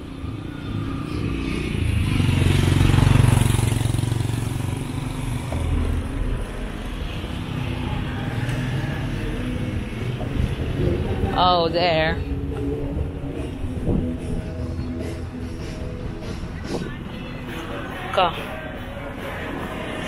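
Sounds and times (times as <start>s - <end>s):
traffic rumble: 0.0s - 20.0s
vehicle driving past: 0.2s - 11.6s.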